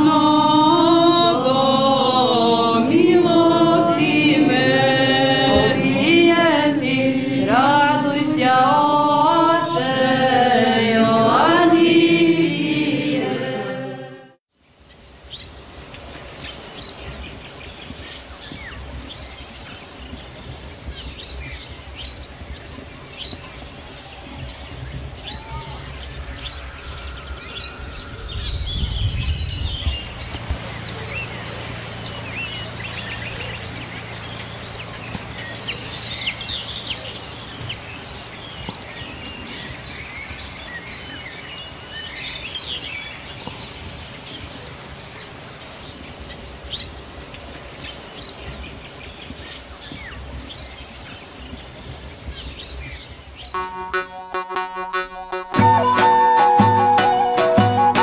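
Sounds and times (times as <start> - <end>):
faint low hum: 0.0 - 14.1
liturgical chant: 0.0 - 14.4
low rumble: 2.9 - 8.6, 25.7 - 33.1
bird chirps: 21.1 - 43.5.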